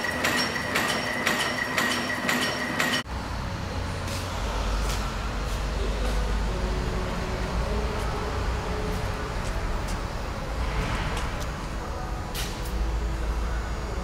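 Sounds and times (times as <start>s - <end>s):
low machinery rumble and hiss: 3.1s - 14.0s.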